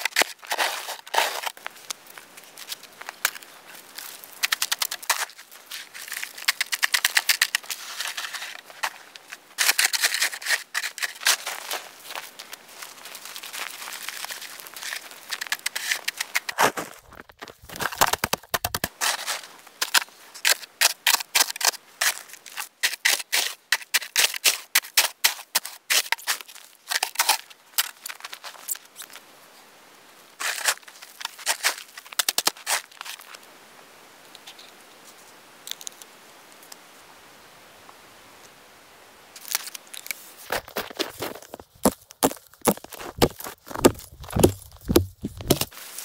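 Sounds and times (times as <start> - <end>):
snow shovel scraping snow: 0.0 - 1.6, 30.4 - 31.9.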